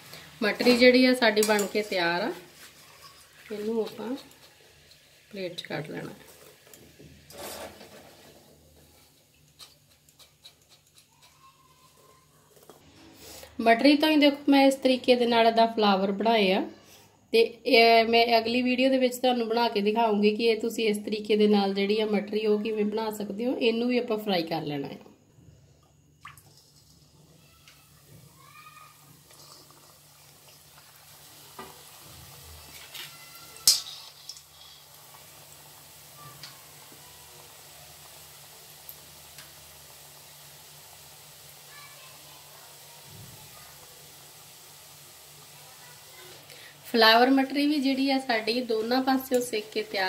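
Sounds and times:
oil bubbling: 0.0 - 12.0, 25.8 - 50.0
dough sizzling in hot oil: 0.0 - 14.2, 25.9 - 50.0
fried snacks clattering onto plate: 32.6 - 34.7.

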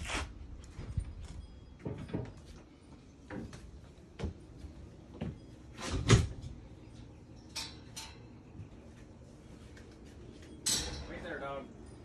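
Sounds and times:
footsteps stepping inside: 0.0 - 6.6.

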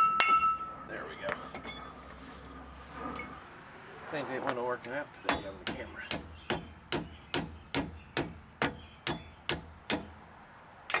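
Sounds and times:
hammer tapping on metal: 5.3 - 10.1.

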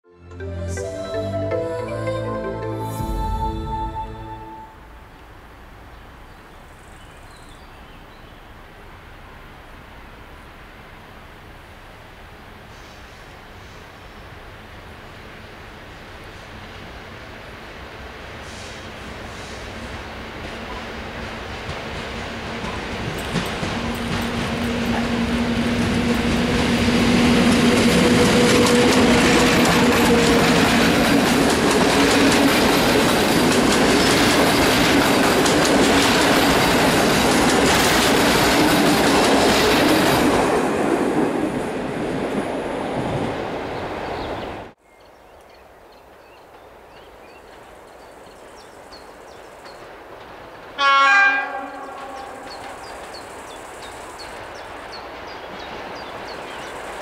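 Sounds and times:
electric train humming: 0.2 - 6.4, 19.0 - 44.1
locomotive horn blast: 0.8 - 5.5, 50.8 - 52.6
wheels clacking over rail joints: 19.9 - 42.6, 49.3 - 50.8, 51.4 - 57.0
birds chirping: 43.6 - 50.0, 51.7 - 57.0.

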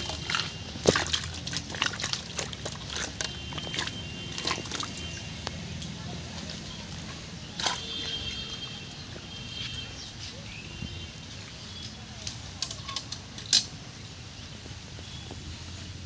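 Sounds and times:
bucket handle clinking: 0.0 - 5.0
bucket set down on grass: 0.0 - 5.2.

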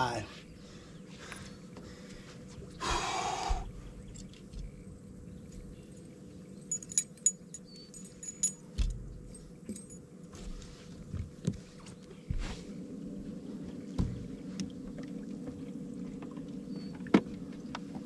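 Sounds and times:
dull knocks on boat: 14.0 - 14.3.

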